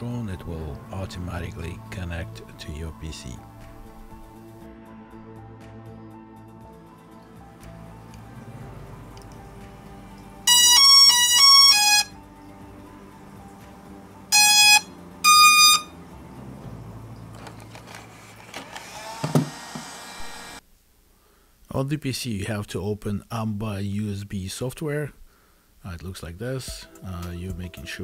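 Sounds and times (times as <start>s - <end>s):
quiet background music: 0.0s - 19.2s, 25.8s - 28.0s
drone start-up beeps: 10.5s - 12.1s, 14.3s - 15.9s.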